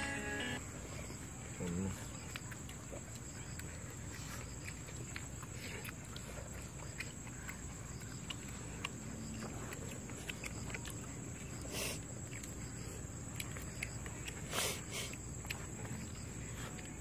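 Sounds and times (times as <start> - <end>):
constant high tone: 0.0 - 0.7
fingers squelching food: 1.6 - 17.0.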